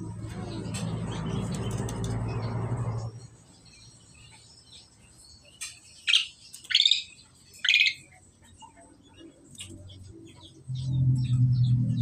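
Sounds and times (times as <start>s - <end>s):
starlings harsh calls: 0.3s - 12.0s.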